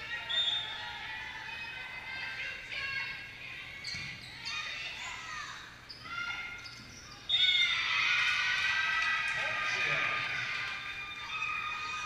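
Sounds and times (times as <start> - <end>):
players calling: 8.6 - 12.0.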